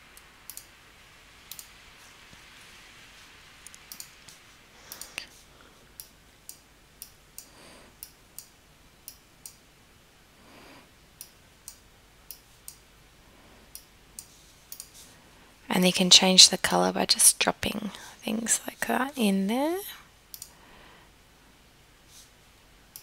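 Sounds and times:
computer mouse clicking: 0.5 - 0.7, 1.5 - 1.8, 3.6 - 5.3, 6.0 - 9.6, 11.2 - 12.8, 13.7 - 15.0, 20.3 - 20.6
soft breaths: 1.8 - 6.2, 7.4 - 8.2, 10.2 - 11.1, 12.4 - 15.7, 17.7 - 23.0.

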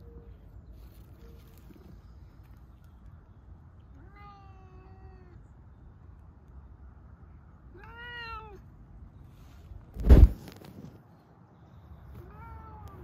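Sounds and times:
cat meowing: 3.9 - 5.4, 7.7 - 8.6, 12.2 - 13.0.

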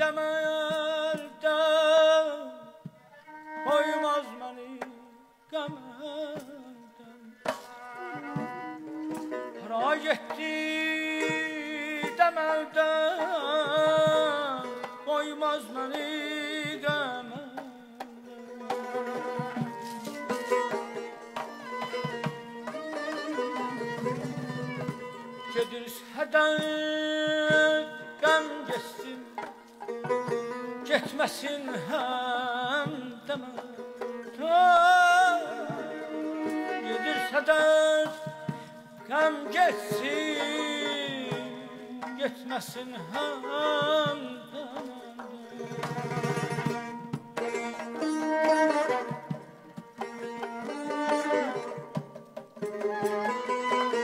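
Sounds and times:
man singing with trills: 0.0 - 49.6
sustained accompanying instrument: 0.0 - 54.0
frame drum strokes: 7.4 - 10.6, 15.9 - 31.8, 32.6 - 54.0.

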